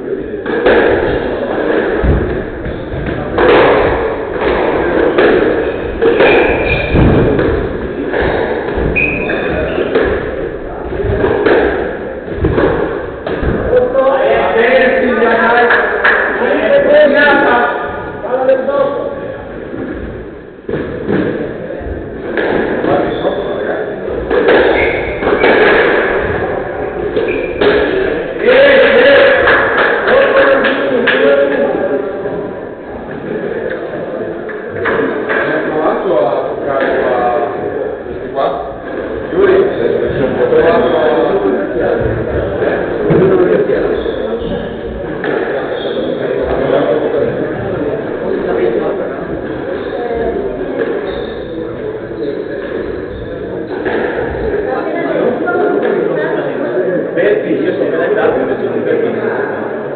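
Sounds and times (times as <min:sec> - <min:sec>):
squash ball knocks echoing: 0:00.4 - 0:13.8, 0:19.7 - 0:31.6
squash ball thuds: 0:01.9 - 0:13.7
shoes squeaking on court floor: 0:05.6 - 0:07.0, 0:08.4 - 0:10.2, 0:24.6 - 0:25.6, 0:27.2 - 0:27.7.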